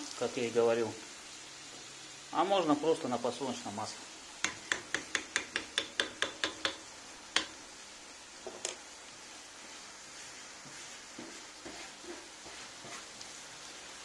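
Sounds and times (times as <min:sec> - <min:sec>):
onions sizzling: 0:00.0 - 0:14.0
wooden spoon clicking against pan: 0:04.4 - 0:06.8, 0:07.4 - 0:07.6
wooden spoon knocks: 0:04.4 - 0:06.8.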